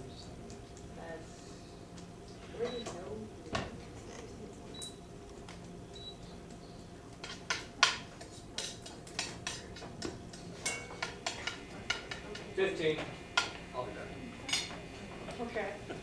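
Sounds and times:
dishes and utensils clinking: 0:07.2 - 0:12.6, 0:14.4 - 0:14.8.

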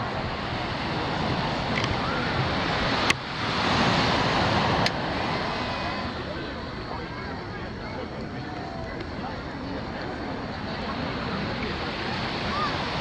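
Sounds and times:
ocean surf on sandy beach: 0:00.0 - 0:13.0.

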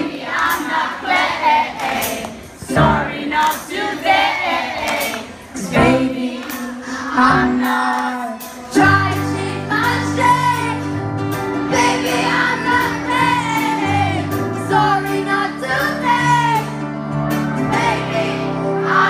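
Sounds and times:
drums: 0:00.0 - 0:19.0
girl singing with vibrato: 0:05.6 - 0:11.0, 0:11.7 - 0:16.7.

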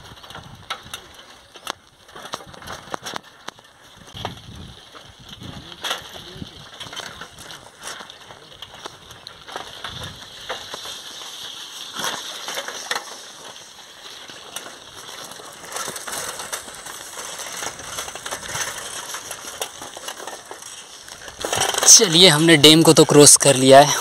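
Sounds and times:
bicycle tyres crunching on dirt: 0:00.0 - 0:24.0
bike clicking and rattling: 0:00.0 - 0:24.0.

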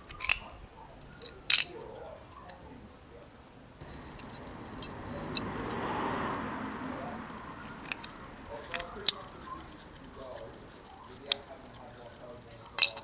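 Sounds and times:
sharp plastic clicks: 0:00.0 - 0:00.6, 0:07.6 - 0:13.0
soft rushing noise: 0:03.8 - 0:12.8.

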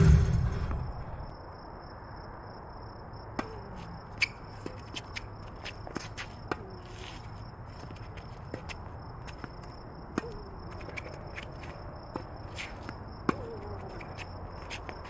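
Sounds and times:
tennis balls struck by rackets: 0:03.4 - 0:05.2, 0:10.1 - 0:11.5, 0:12.1 - 0:15.0
tennis balls bouncing on court: 0:03.4 - 0:15.0.

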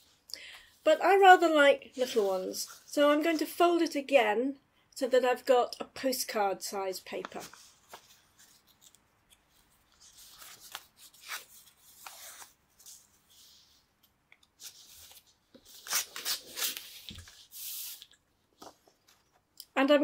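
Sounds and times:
paper rustling and rubbing: 0:07.1 - 0:13.8, 0:14.6 - 0:19.2.

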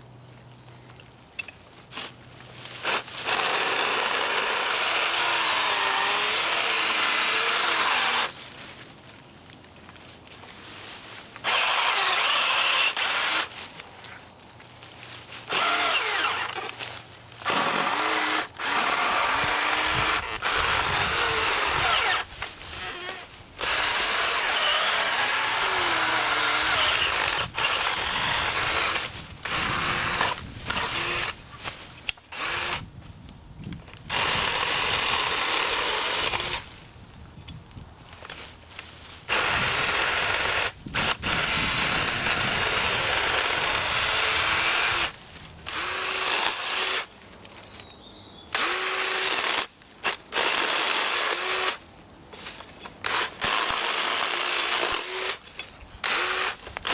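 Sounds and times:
electric chainsaw cutting branches: 0:02.7 - 0:08.4, 0:11.4 - 0:13.6, 0:15.4 - 0:32.9, 0:34.0 - 0:36.8, 0:39.3 - 0:47.1, 0:48.5 - 0:51.8, 0:52.4 - 0:56.9.

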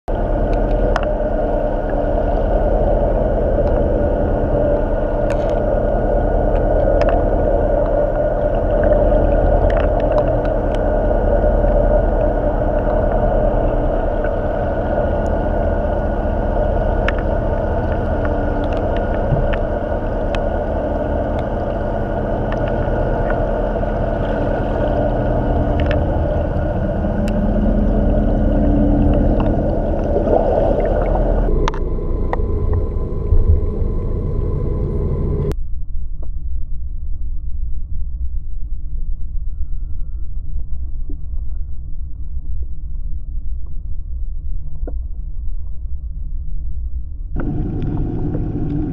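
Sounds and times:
boat motor droning underwater: 0:00.1 - 0:35.6, 0:47.3 - 0:48.9
faint clicks: 0:06.5 - 0:08.0, 0:17.0 - 0:20.5.

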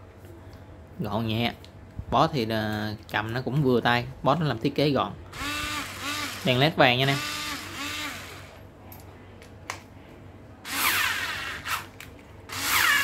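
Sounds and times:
cordless screwdriver motor whining: 0:05.3 - 0:08.6, 0:10.7 - 0:11.9, 0:12.5 - 0:13.0.

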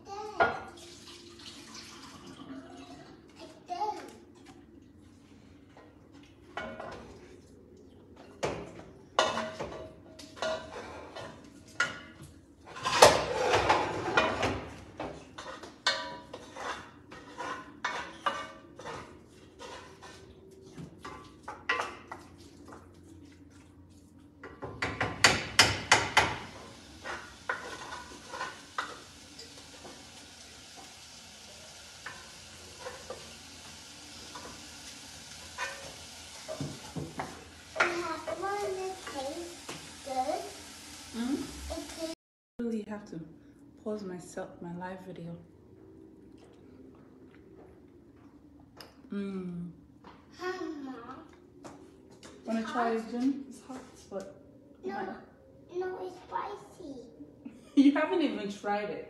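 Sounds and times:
spoon scraping and knocking cookware: 0:09.2 - 0:22.3.

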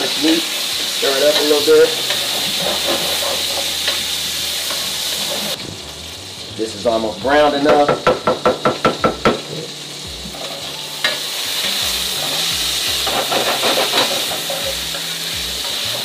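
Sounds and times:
sausage sizzling in a frying pan: 0:00.0 - 0:16.0
wooden spatula scraping pan: 0:01.2 - 0:05.6, 0:12.1 - 0:14.7.

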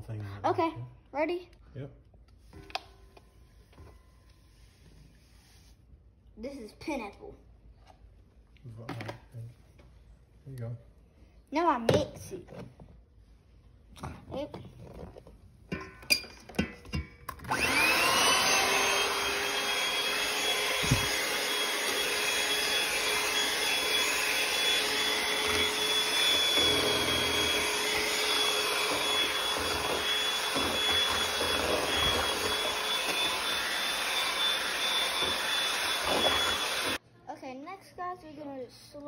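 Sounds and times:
beaters whisking in steel bowl: 0:16.6 - 0:37.0
electric hand mixer whining: 0:17.3 - 0:37.0.

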